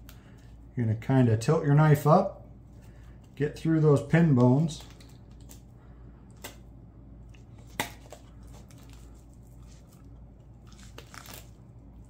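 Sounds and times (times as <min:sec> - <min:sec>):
low steady hum: 0:00.0 - 0:12.0
knife crunching through fish bones: 0:10.5 - 0:11.7.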